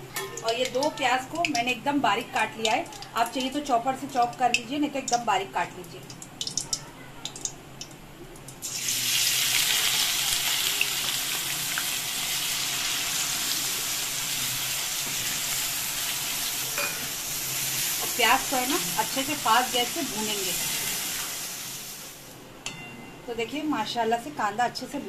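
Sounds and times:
onions sizzling in hot oil: 8.5 - 22.4.

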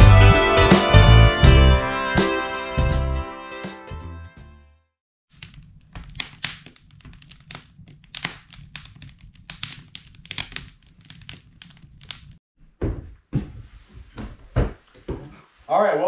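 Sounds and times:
wood fire crackling and popping: 5.4 - 12.4
dull thumps: 12.7 - 15.4.

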